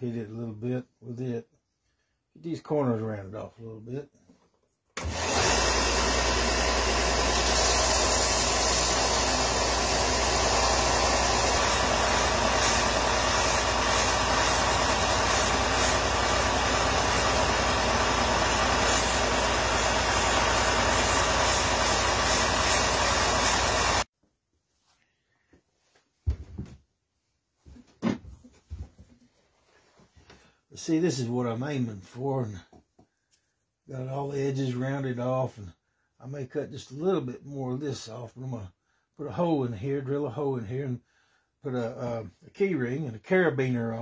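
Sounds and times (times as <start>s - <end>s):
belt sander running: 5.0s - 24.1s.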